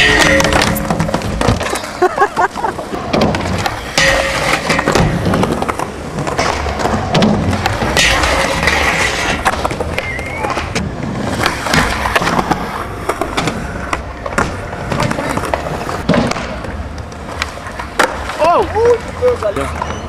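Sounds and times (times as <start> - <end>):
skateboard popping clack: 0.0 - 18.9
skateboard rolling on concrete: 0.0 - 20.0
grind on a metal rail: 3.5 - 9.8.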